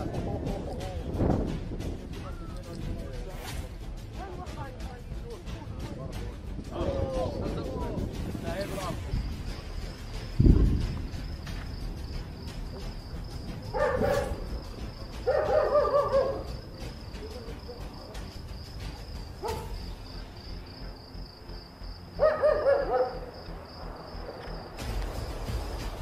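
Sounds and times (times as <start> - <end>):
crickets chirping: 0.0 - 26.0
dogs barking: 13.7 - 14.6, 15.2 - 16.6, 19.3 - 19.8, 22.2 - 23.4.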